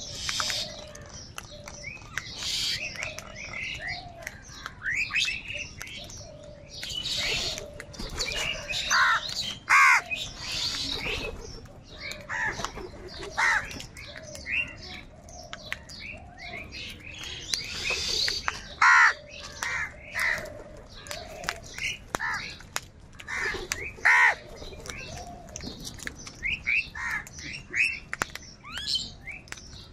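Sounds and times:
crows cawing: 0:08.4 - 0:10.2, 0:13.3 - 0:13.7, 0:18.0 - 0:21.6, 0:22.2 - 0:22.6, 0:23.2 - 0:24.5, 0:27.0 - 0:27.3.

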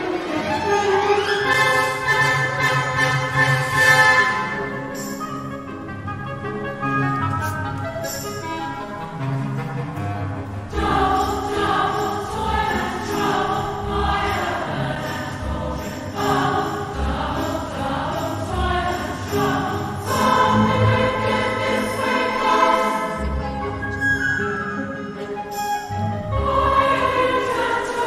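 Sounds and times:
choir singing with orchestra: 0:00.0 - 0:06.4, 0:08.0 - 0:28.0.

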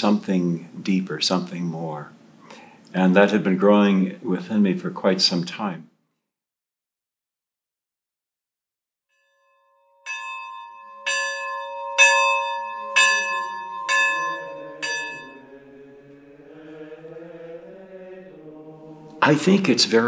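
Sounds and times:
bell ringing: 0:09.2 - 0:15.8
faint chanting voices: 0:14.3 - 0:20.0.

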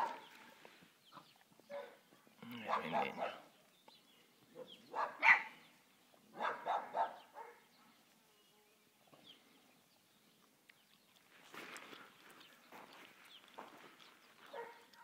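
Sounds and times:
dogs barking: 0:00.0 - 0:00.3, 0:01.7 - 0:03.5, 0:04.5 - 0:05.6, 0:06.3 - 0:07.7, 0:14.4 - 0:15.0.

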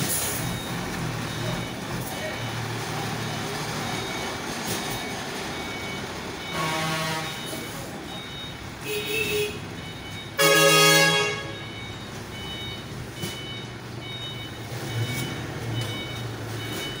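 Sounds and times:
truck engine running: 0:00.0 - 0:08.9, 0:09.6 - 0:17.0
reversing alarm beeping: 0:00.0 - 0:17.0
truck horn blast: 0:06.5 - 0:07.4, 0:08.8 - 0:09.7, 0:10.4 - 0:11.6.

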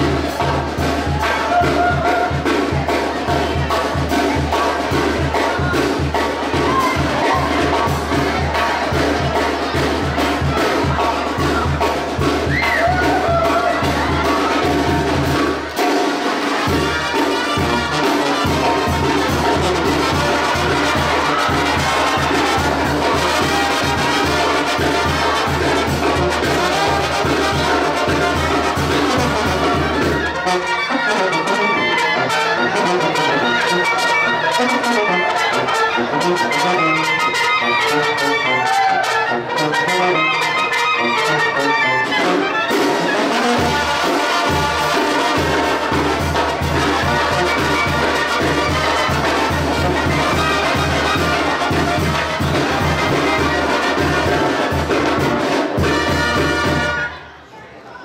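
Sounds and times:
steady beat: 0:00.0 - 0:30.5
trumpets and trombones: 0:00.0 - 0:57.4.

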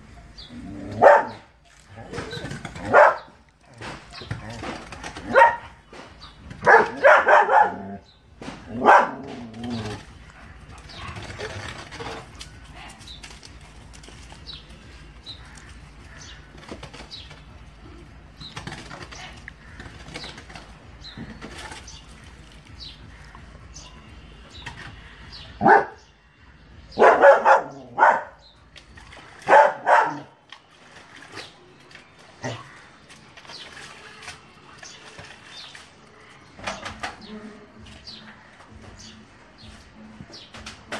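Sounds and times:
dog barking: 0:01.0 - 0:01.5, 0:02.9 - 0:03.3, 0:05.3 - 0:05.6, 0:06.6 - 0:07.9, 0:08.8 - 0:09.2, 0:25.6 - 0:26.0, 0:27.0 - 0:28.4, 0:29.5 - 0:30.3.

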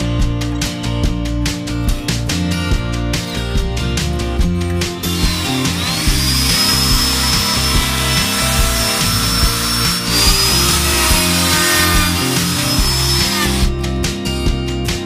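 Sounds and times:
background music with bass line: 0:00.0 - 0:15.0
router whining and cutting wood: 0:04.7 - 0:13.8.

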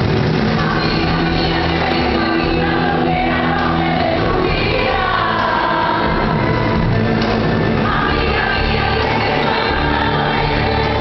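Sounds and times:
live pop band playing: 0:00.0 - 0:11.0
person singing: 0:00.6 - 0:06.9.

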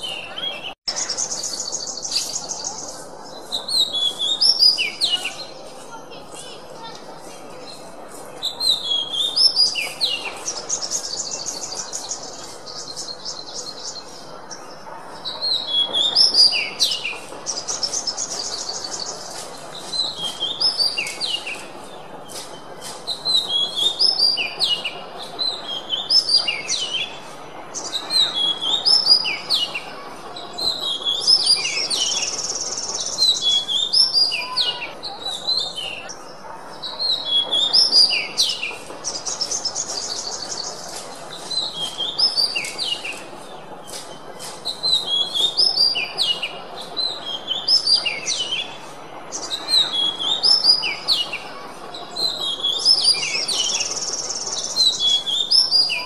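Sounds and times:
bird singing whistled notes: 0:00.0 - 0:05.5.

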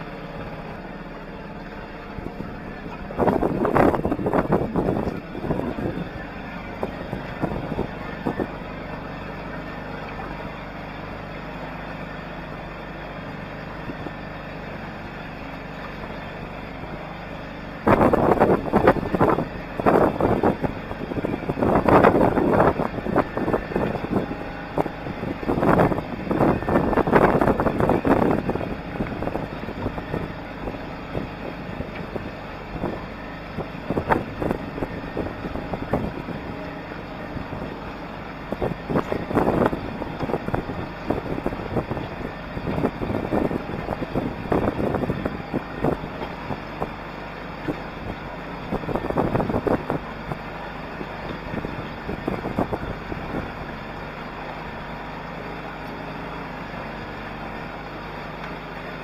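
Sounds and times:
wind buffeting microphone: 0:00.0 - 0:55.0
steady rush of noise: 0:02.2 - 0:08.7, 0:16.4 - 0:47.0.

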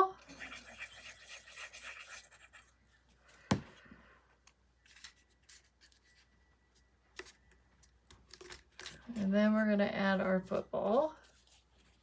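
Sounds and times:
rustling and scraping of card: 0:04.8 - 0:12.0.

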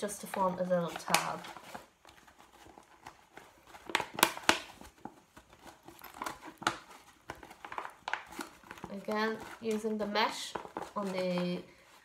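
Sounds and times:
plastic bag crinkling: 0:00.0 - 0:11.7.

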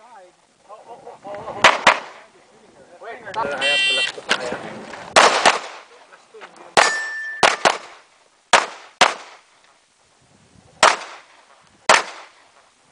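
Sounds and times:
pistol shots: 0:01.6 - 0:02.2, 0:05.1 - 0:05.9, 0:06.8 - 0:09.4, 0:10.8 - 0:11.3, 0:11.9 - 0:12.4
steel target ringing: 0:06.8 - 0:07.6.

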